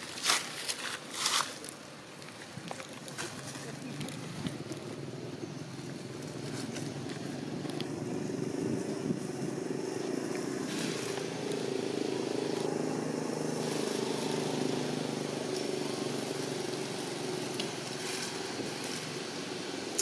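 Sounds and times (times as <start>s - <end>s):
motor engine running: 3.4s - 20.0s.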